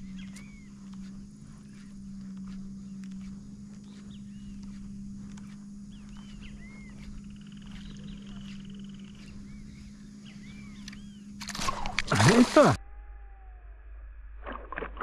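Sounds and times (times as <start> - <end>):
steady low hum: 0.0 - 15.0.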